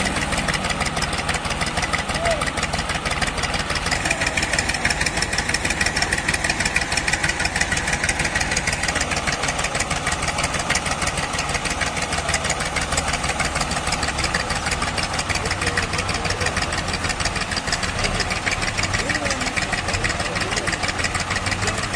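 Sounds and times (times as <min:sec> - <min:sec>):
tractor diesel engine chugging: 0:00.0 - 0:21.9.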